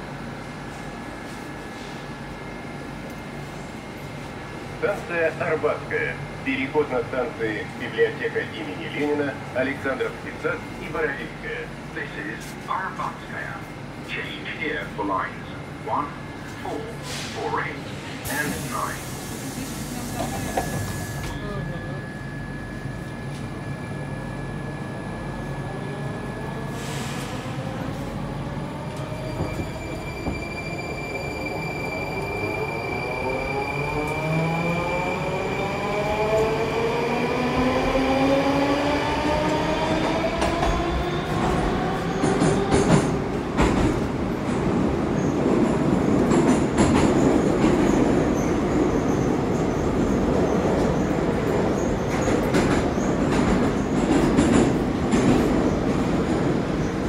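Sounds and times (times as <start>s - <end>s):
wheels rumbling on rail: 33.2s - 57.0s.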